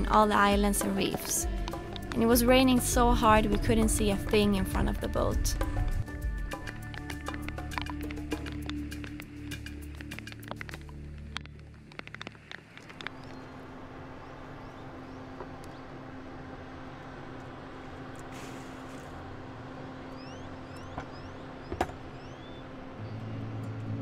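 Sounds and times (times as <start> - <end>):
sharp clicks: 6.6 - 13.4
low mechanical hum: 10.8 - 24.0.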